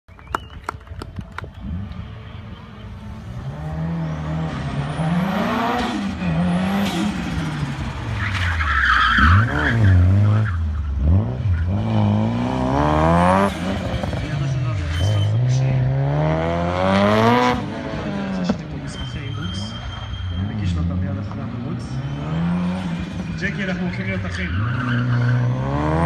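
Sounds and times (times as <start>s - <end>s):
car engine revving hard: 3.4s - 8.1s, 9.2s - 18.5s, 24.6s - 26.0s
tyres squealing: 18.8s - 20.9s.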